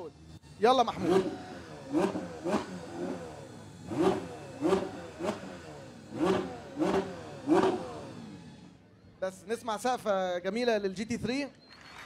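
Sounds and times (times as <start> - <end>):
car engine revving: 0.0 - 8.8.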